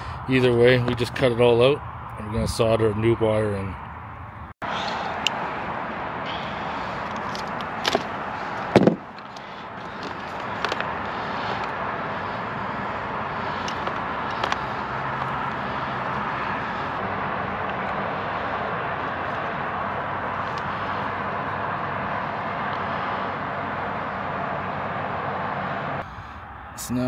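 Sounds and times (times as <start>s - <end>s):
outdoor background rush: 0.0s - 27.0s
loud short thump: 8.8s - 9.1s.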